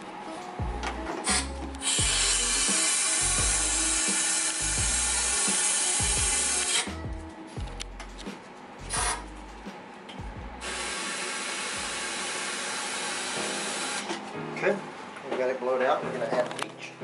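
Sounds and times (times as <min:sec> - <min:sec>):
air hissing through drain line: 0:01.1 - 0:07.0, 0:10.6 - 0:14.2.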